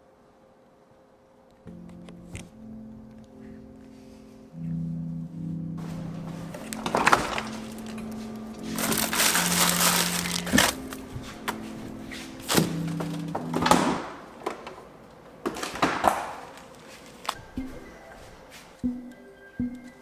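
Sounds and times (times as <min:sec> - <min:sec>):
soft background music: 0:01.7 - 0:14.5, 0:16.7 - 0:20.0
crinkling plastic: 0:06.5 - 0:11.6, 0:15.6 - 0:17.4.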